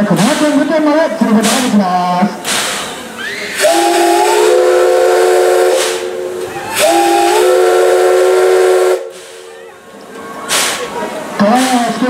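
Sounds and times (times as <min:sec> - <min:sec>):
steam locomotive whistle blasts: 0:03.2 - 0:09.5.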